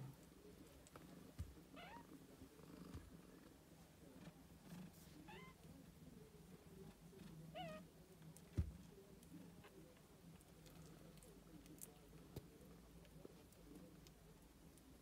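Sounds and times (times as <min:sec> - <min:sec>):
cat purring: 0:00.9 - 0:05.5.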